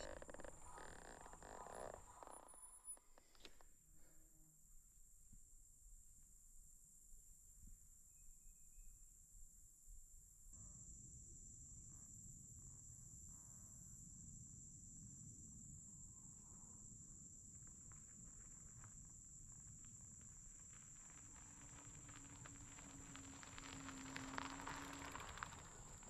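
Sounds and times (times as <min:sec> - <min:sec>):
high insect drone: 0:00.0 - 0:05.2, 0:10.6 - 0:26.0.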